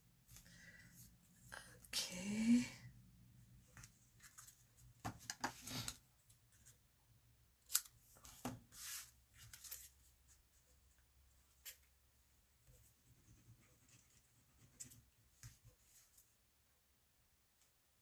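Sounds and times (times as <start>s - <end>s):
paper rustling: 7.7s - 10.4s.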